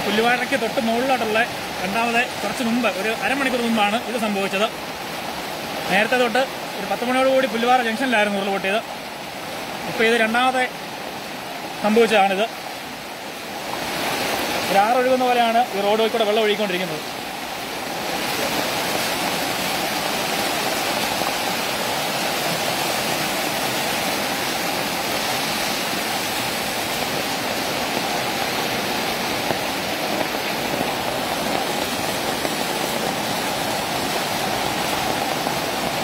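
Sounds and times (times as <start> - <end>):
floodwater rushing: 0.0 - 36.0.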